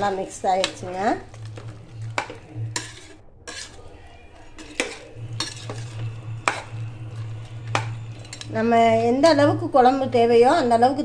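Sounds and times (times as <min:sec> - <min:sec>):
ladle clinking against pot: 0:00.0 - 0:03.8, 0:04.4 - 0:08.5
ladle stirring thick gravy: 0:00.0 - 0:09.3.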